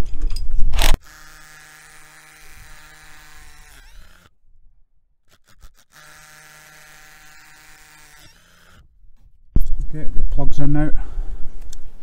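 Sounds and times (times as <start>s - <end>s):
drill drilling into masonry: 0.8s - 4.4s, 5.2s - 9.0s.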